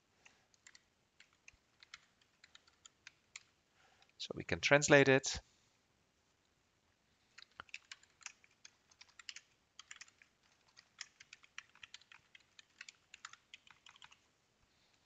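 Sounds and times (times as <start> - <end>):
typing on keyboard: 0.2 - 3.6, 7.4 - 14.2.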